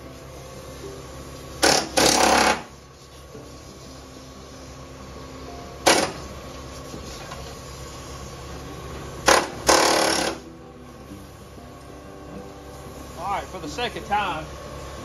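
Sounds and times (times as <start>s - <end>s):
pneumatic air chisel hammering metal: 1.5s - 3.6s, 5.8s - 6.3s, 9.2s - 10.5s.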